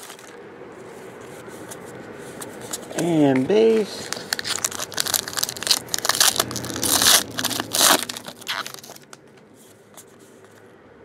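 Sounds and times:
foil wrapper crinkling: 0.0 - 0.4, 2.6 - 9.3.

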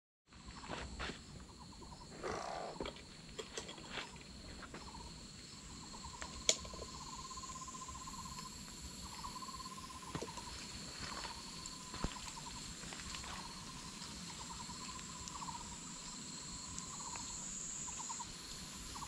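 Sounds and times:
high insect drone: 0.3 - 19.0
low animal call: 2.1 - 3.0.

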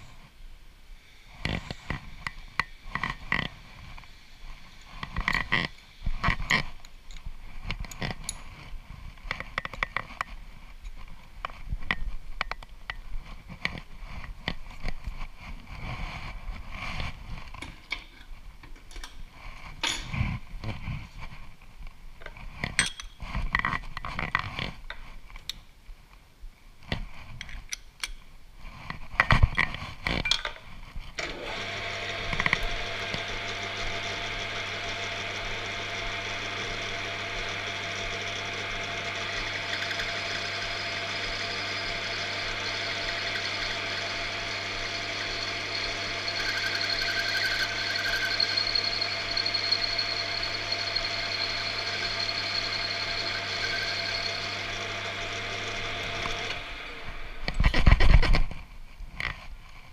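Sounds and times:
lathe running hum: 31.2 - 57.7.

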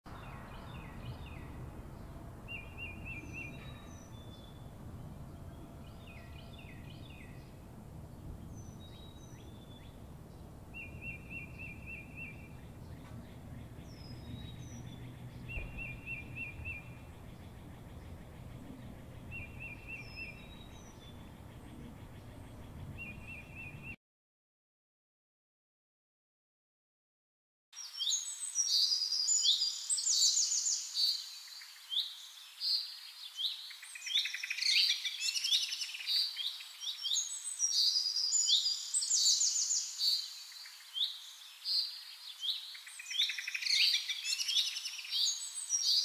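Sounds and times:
bird chirps: 0.1 - 24.0, 27.8 - 46.0
low background noise: 0.1 - 24.0
downward-slurred bird whistles: 0.2 - 7.6, 10.7 - 24.0
bird trilling: 0.3 - 24.0.

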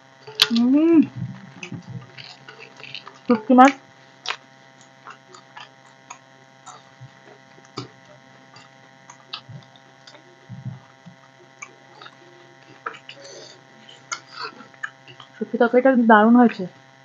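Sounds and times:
people chewing food: 0.0 - 15.6
steady electrical hum: 0.0 - 17.0
low soft thuds: 1.0 - 2.1
soft mouth clicks and smacks: 4.2 - 15.4.

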